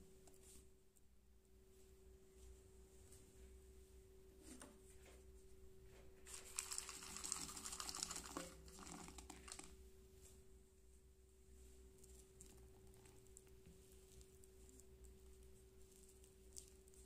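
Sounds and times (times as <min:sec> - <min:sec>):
faint steady hum: 0:00.0 - 0:17.0
chocolate pieces pattering into bowl: 0:06.3 - 0:09.8.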